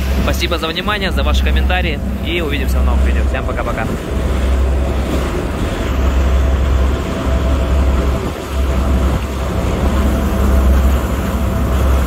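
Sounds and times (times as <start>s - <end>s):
churning wake water: 0.0s - 12.0s
motorboat engine drone: 0.0s - 12.0s.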